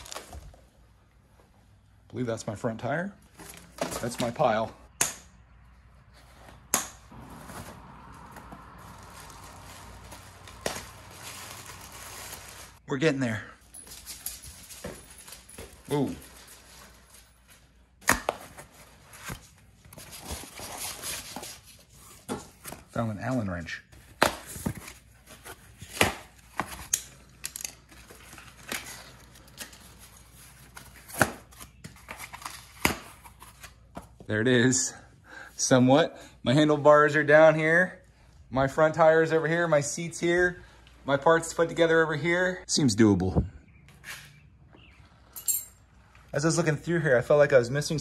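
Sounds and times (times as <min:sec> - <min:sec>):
packaging rustling: 0:00.0 - 0:00.6, 0:07.4 - 0:12.8
wrapping rustling: 0:00.0 - 0:00.7, 0:07.4 - 0:12.8, 0:13.6 - 0:22.2.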